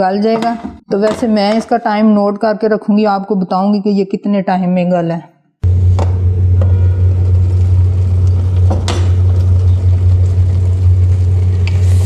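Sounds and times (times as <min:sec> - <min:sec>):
steady low hum: 0:05.6 - 0:12.0.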